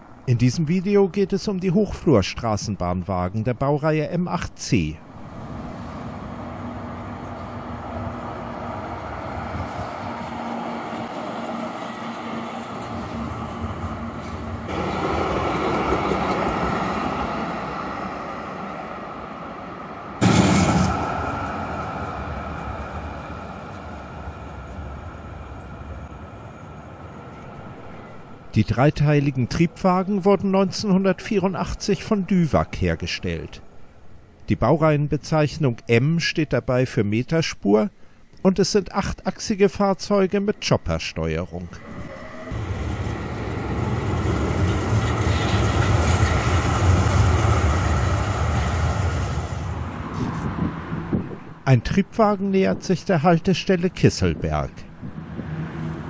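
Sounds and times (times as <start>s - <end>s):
tram high whine: 5.0s - 34.4s, 40.2s - 52.8s, 53.8s - 56.0s
tram rumbling past: 5.0s - 34.4s, 41.4s - 52.2s, 53.8s - 56.0s.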